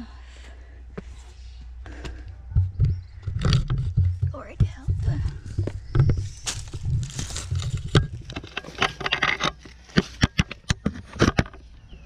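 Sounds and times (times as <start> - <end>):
scuffs on rough rock: 1.0 - 10.6
crisp knocks: 3.5 - 9.4.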